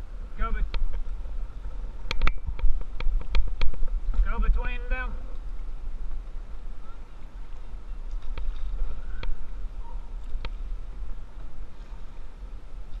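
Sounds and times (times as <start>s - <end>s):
steady low rumble: 0.0s - 13.0s
canoe paddle strokes: 7.2s - 13.0s.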